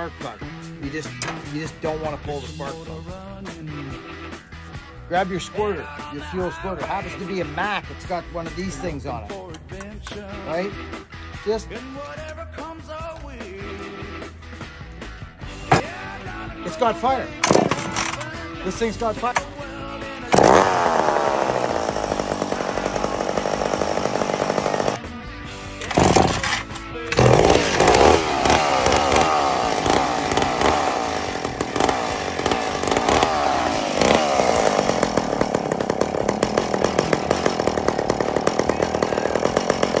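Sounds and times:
chainsaw engine revving: 0:17.4 - 0:18.2, 0:20.2 - 0:25.0, 0:25.8 - 0:40.0.

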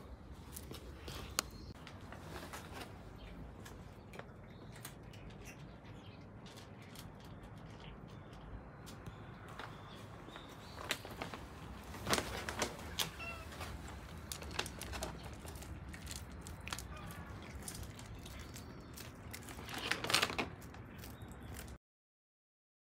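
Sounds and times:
cats eating dry food from tray: 0:03.2 - 0:09.0, 0:12.5 - 0:21.8
cat meowing: 0:12.9 - 0:13.8.

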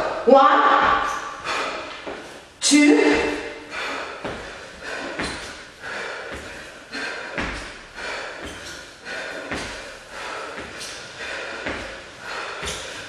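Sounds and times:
trainers thumping on tiled floor: 0:00.0 - 0:02.3, 0:03.0 - 0:13.0
sharp exhales: 0:01.1 - 0:02.0.

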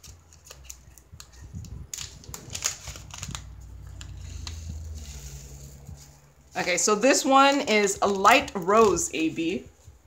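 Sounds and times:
plastic bag crinkling: 0:00.0 - 0:09.9
low rubbing rumble: 0:01.4 - 0:07.0.

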